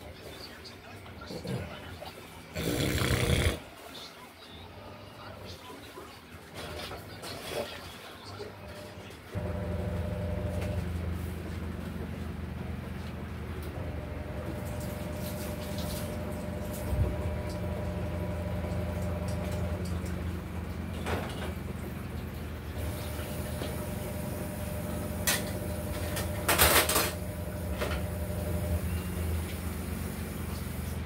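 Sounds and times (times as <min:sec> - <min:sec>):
tap water running: 0:13.6 - 0:31.0.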